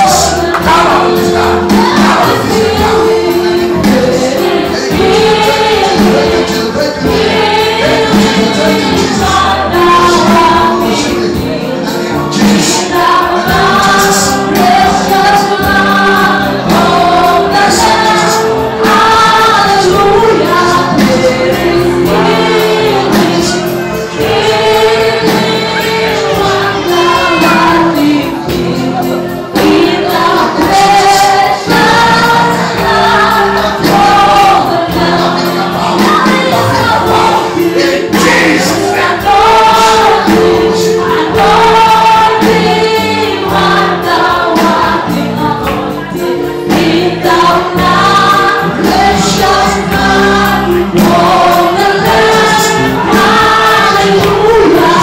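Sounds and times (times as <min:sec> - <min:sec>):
gospel choir singing: 0:00.0 - 0:55.0.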